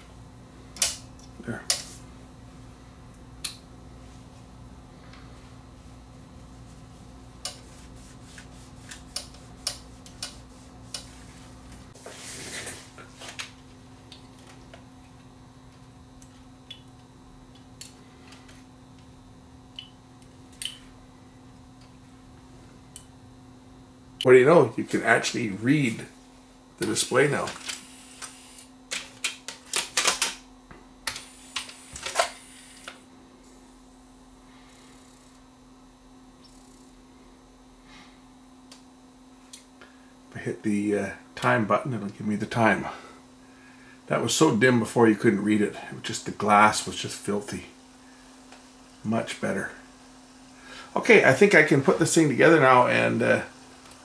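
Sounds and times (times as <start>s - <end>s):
steady low hum: 0.0s - 54.0s
wiping rub: 6.6s - 13.3s.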